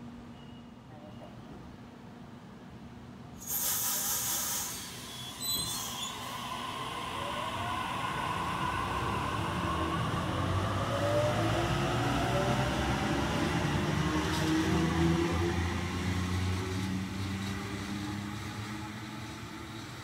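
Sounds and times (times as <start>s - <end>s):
air hiss: 3.4s - 8.4s
high squeal: 3.5s - 10.4s
electric train drive whine: 4.9s - 14.0s.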